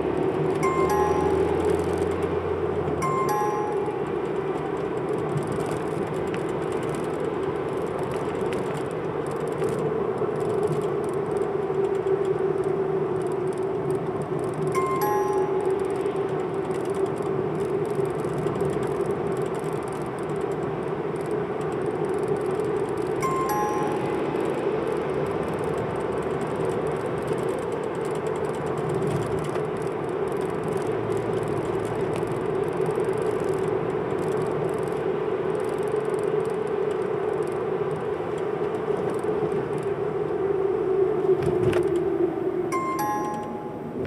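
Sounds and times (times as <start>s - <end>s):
car engine and road drone: 0.0s - 44.0s
short electronic chime: 0.6s - 2.1s, 3.0s - 4.1s, 14.8s - 15.8s, 23.2s - 24.3s, 42.7s - 44.0s.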